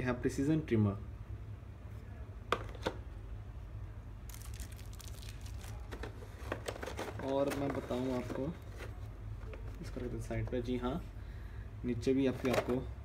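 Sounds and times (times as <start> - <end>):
plastic packaging crinkling: 4.3 - 10.1.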